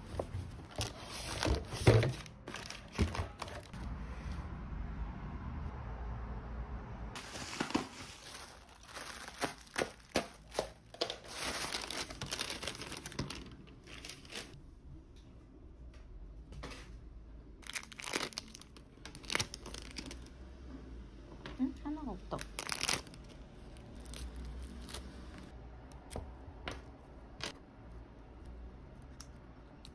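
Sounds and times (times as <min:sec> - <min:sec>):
plastic bags crinkling: 0:00.6 - 0:03.8, 0:07.2 - 0:14.6, 0:17.6 - 0:20.4, 0:22.3 - 0:25.5.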